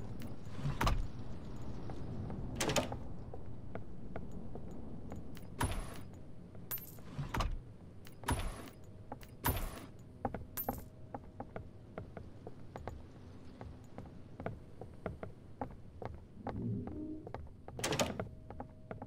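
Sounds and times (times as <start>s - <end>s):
low rumble: 16.2s - 17.6s.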